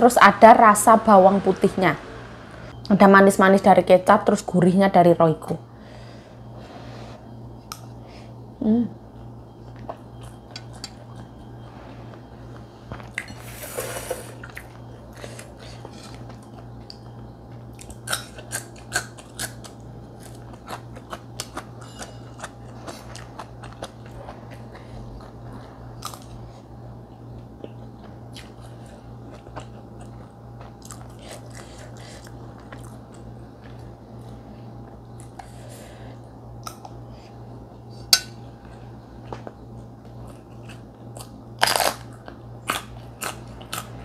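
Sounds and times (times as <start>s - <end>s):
steady low hum: 0.0s - 44.0s
rice being chewed: 9.5s - 13.6s, 14.4s - 35.7s, 38.6s - 44.0s.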